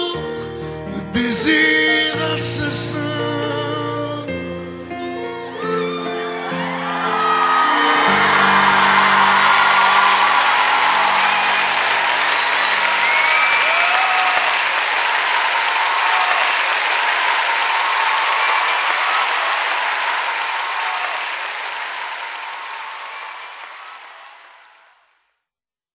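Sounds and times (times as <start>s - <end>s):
music: 0.0s - 14.6s
cheers: 5.5s - 25.1s
audience applause: 5.6s - 25.1s.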